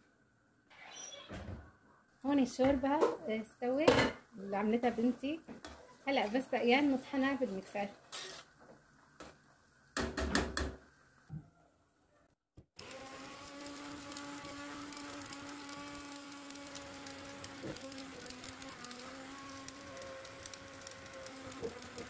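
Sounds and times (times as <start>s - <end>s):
stick blender humming: 12.8s - 22.0s.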